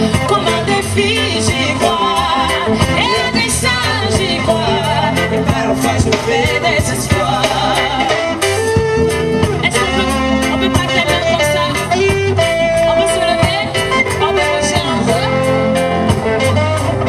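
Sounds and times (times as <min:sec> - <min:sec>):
woman singing into a microphone: 0:00.0 - 0:08.4, 0:09.4 - 0:17.0
live band music: 0:00.0 - 0:17.0.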